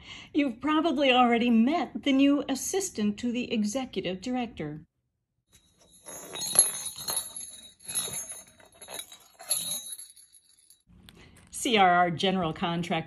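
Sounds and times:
jingle bell jingling: 5.6s - 10.8s.

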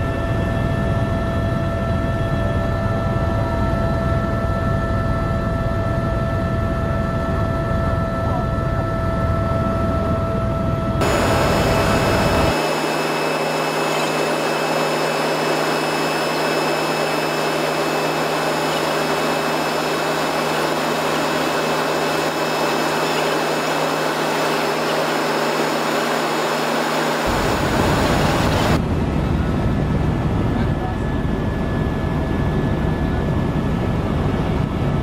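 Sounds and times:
helicopter engine and rotor rush: 0.0s - 35.0s
high whining tones: 10.9s - 28.8s.

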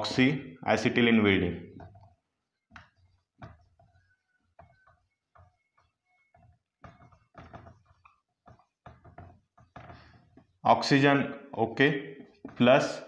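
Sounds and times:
marker pen on whiteboard: 0.0s - 13.0s.

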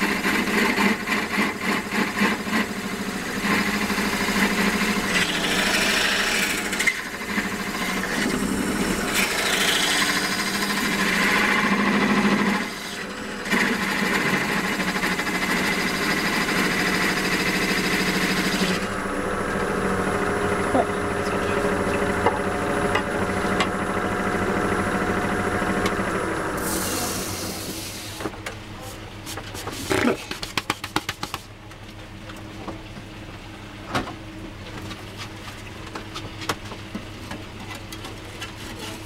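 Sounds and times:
wood lathe humming: 0.0s - 28.1s
tool scraping spinning wood: 0.0s - 28.2s, 29.3s - 31.6s.

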